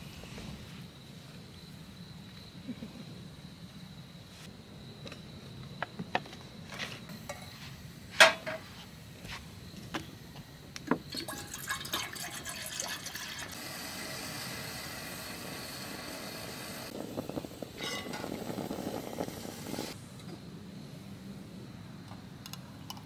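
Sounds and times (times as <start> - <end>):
water pouring into metal kettle: 11.1 - 16.9
gas stove burner hissing: 12.9 - 20.3.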